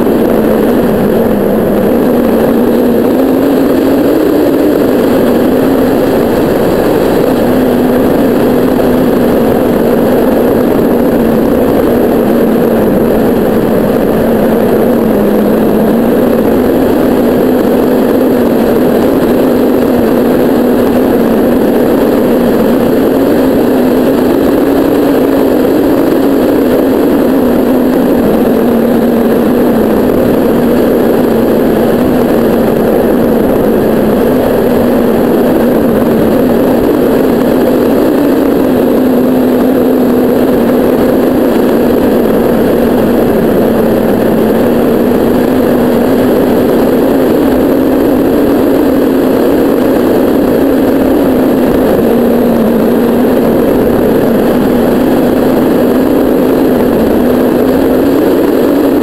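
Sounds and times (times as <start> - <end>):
low wavering hum: 0.0 - 59.0
rush of airflow: 0.0 - 59.0.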